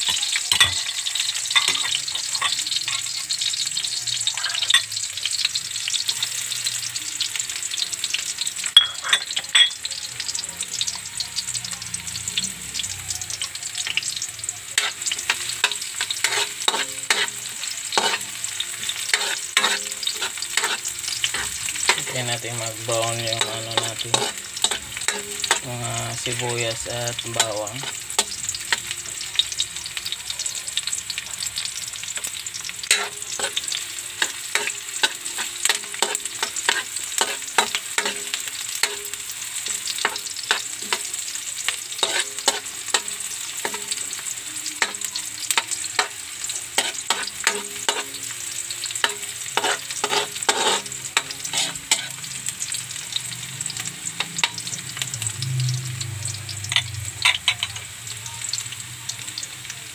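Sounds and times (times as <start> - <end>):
spatula scraping a wok: 0.0 - 3.6, 4.2 - 5.3, 14.7 - 29.5, 30.8 - 55.1
onions sizzling in hot oil: 0.0 - 59.9.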